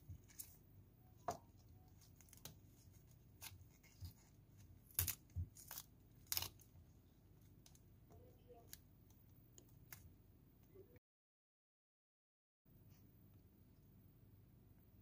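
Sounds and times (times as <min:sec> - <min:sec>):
cauliflower florets snapping: 0:04.8 - 0:06.6.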